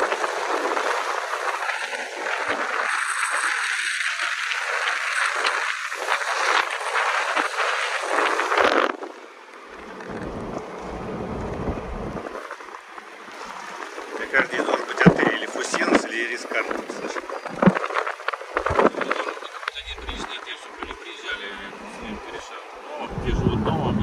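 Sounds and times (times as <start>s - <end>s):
crackly hiss: 0.0s - 22.8s
low car rumble: 8.9s - 24.0s.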